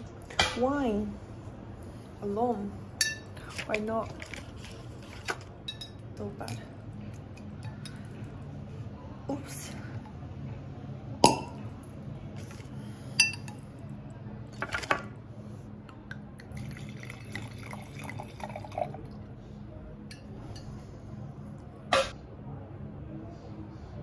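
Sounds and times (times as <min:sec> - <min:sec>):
cork popping: 0:11.2 - 0:11.7
wine pouring into glass: 0:16.4 - 0:19.3.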